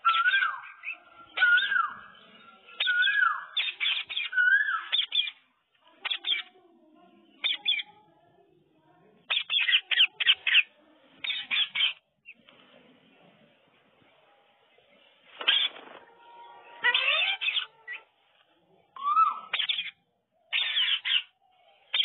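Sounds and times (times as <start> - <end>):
parakeets squawking: 0.0 - 2.0, 2.8 - 5.4, 6.0 - 6.6, 9.3 - 12.0, 15.4 - 15.8, 16.7 - 18.1, 19.0 - 21.3.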